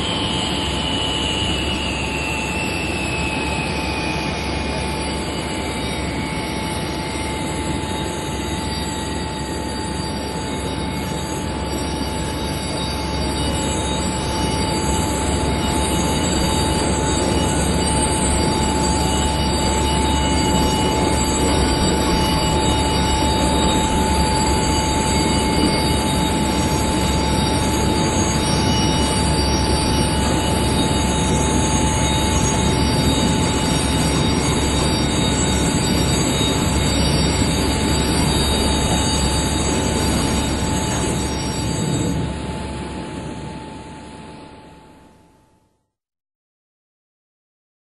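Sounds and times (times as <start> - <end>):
jet engine roar and whine: 0.0 - 45.4.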